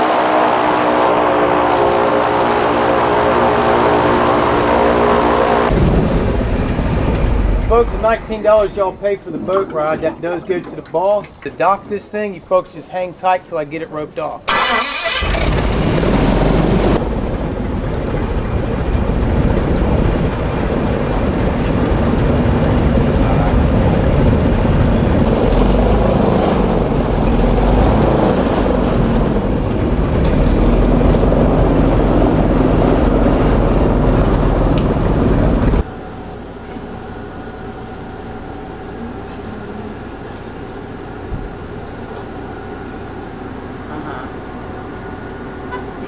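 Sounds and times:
airboat engine and propeller: 0.0s - 8.9s, 14.5s - 46.0s
steady hum: 0.0s - 10.3s, 15.4s - 46.0s.

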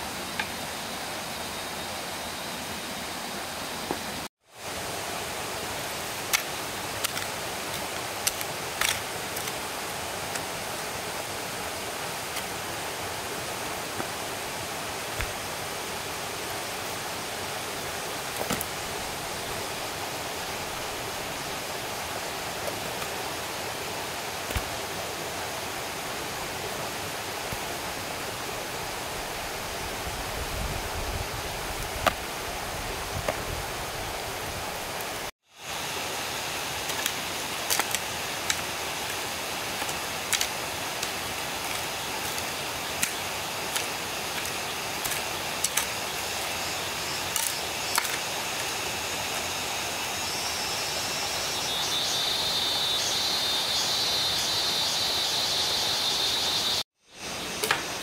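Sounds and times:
insect trill: 35.6s - 58.0s.

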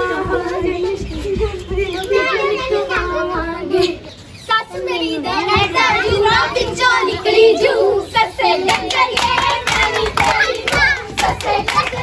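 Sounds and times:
girls singing folk songs: 0.0s - 12.0s
hand clapping beat: 8.6s - 12.0s.

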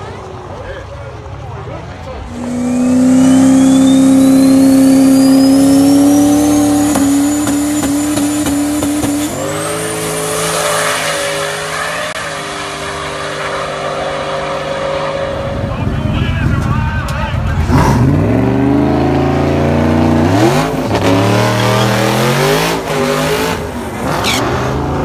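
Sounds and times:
truck engine at full throttle: 0.0s - 25.0s
turbo whine: 2.2s - 10.4s.

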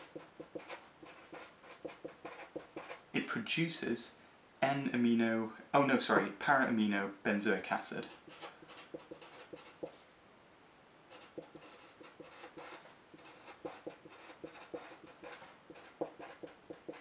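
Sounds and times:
marker scratching on paper: 0.0s - 3.0s, 8.1s - 10.0s, 11.1s - 17.0s.

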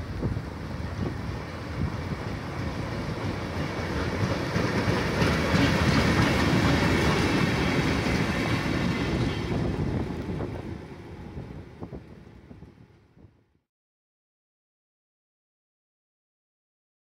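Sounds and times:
train engine rumble: 0.0s - 13.6s
wheels over rail joints: 0.9s - 13.0s.

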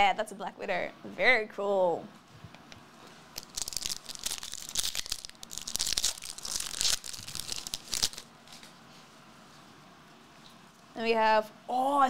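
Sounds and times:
foil wrapper crinkling: 3.3s - 8.7s.

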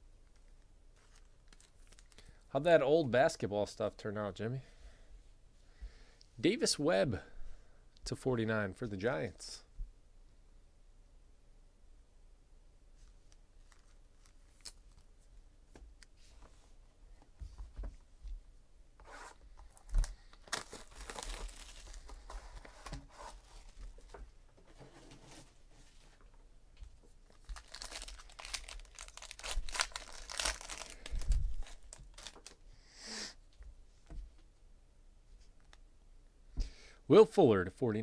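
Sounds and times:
foil wrapping tearing and crinkling: 19.8s - 22.7s, 27.3s - 32.6s.

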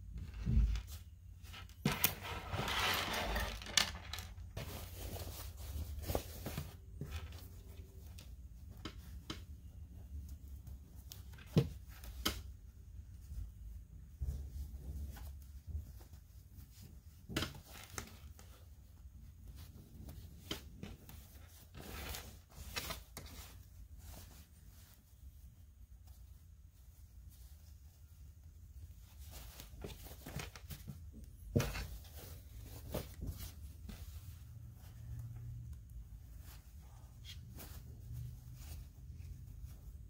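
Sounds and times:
cloth and cord rustling: 0.0s - 40.0s.

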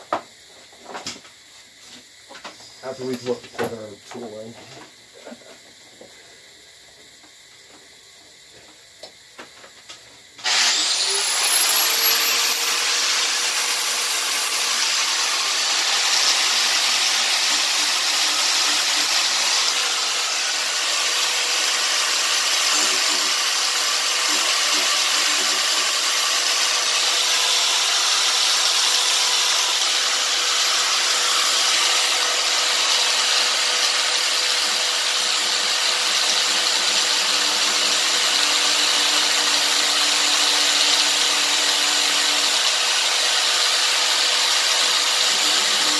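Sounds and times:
angle grinder grinding metal: 10.4s - 45.9s.

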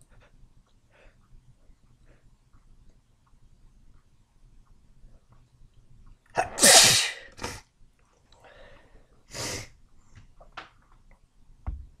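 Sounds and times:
person sneezing: 6.4s - 7.6s.

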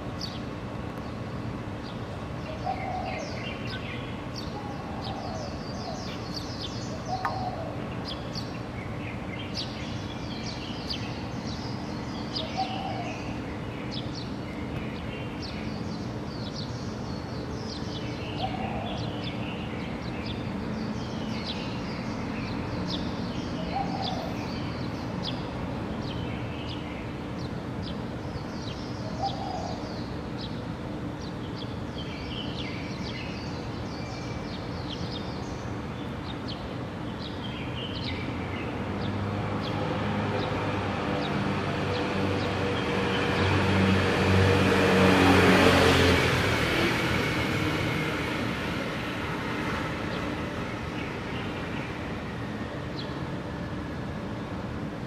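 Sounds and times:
birds chirping and singing: 1.8s - 39.8s.

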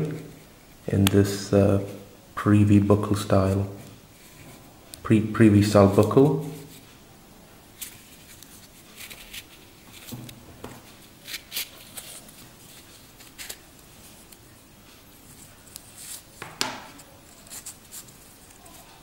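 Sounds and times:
watch strap rustling and scraping: 4.2s - 4.7s, 7.8s - 14.4s, 15.2s - 19.0s.

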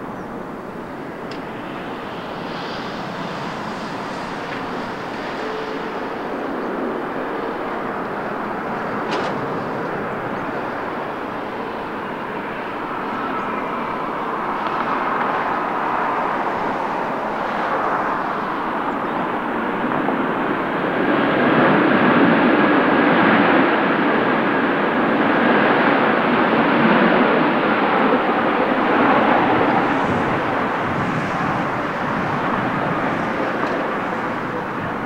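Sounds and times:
jet engines rushing and whining: 0.0s - 35.0s.

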